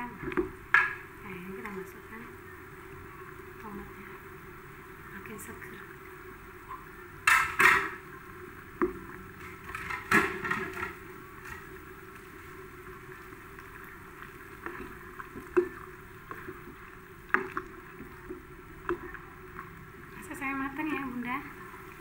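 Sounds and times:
steady hiss: 0:00.0 - 0:22.0
broth sloshing in pot: 0:07.2 - 0:22.0.

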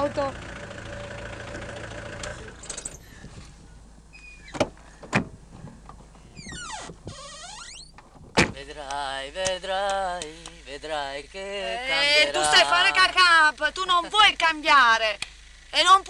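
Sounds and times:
car engine idling: 0:00.0 - 0:04.1, 0:08.0 - 0:16.0
car door slam: 0:04.5 - 0:05.4, 0:08.2 - 0:08.6
person speaking: 0:11.5 - 0:14.3.

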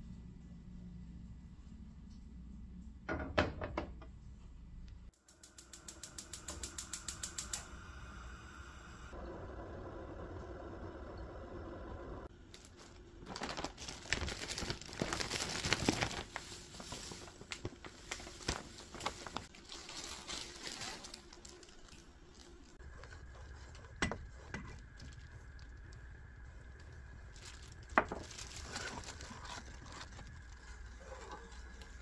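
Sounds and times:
low steady hum: 0:00.0 - 0:05.2
plastic bag crinkling: 0:12.5 - 0:22.8, 0:26.7 - 0:31.8.

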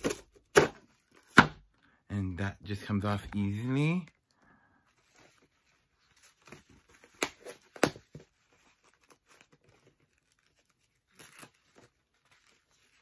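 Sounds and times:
packaging ripping: 0:06.2 - 0:13.0.

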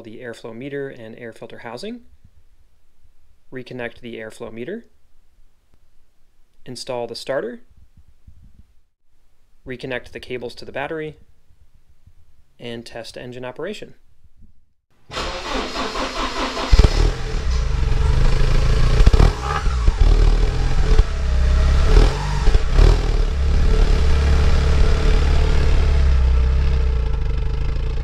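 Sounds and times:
car engine starting and revving: 0:15.1 - 0:28.0.

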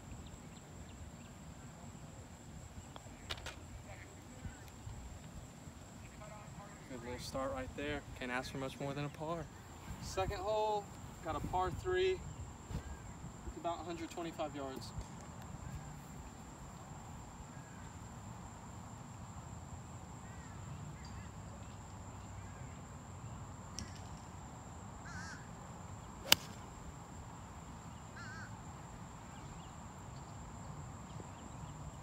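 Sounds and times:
golf club striking ball: 0:26.2 - 0:26.6.

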